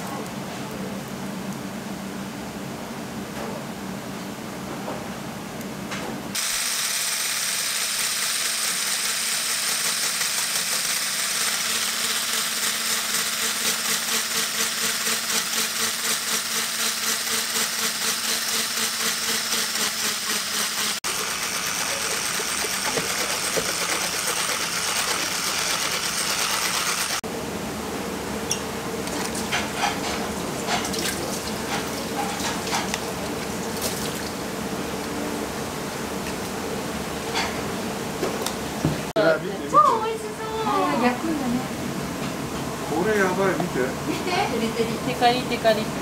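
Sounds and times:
electric mixer whirring: 6.4 - 27.2.

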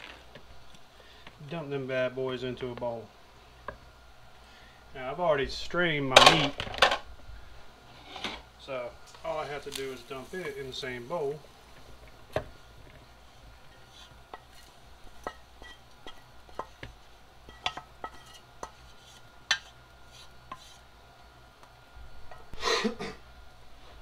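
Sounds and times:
wooden spoon scraping a pot: 7.9 - 8.5, 13.3 - 16.8, 17.4 - 20.9.

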